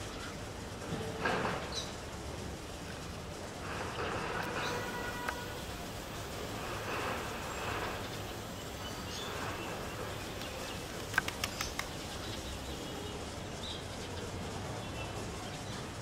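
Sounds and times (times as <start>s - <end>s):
steady background hiss: 0.0s - 16.0s
quick run of clicks: 10.2s - 12.6s.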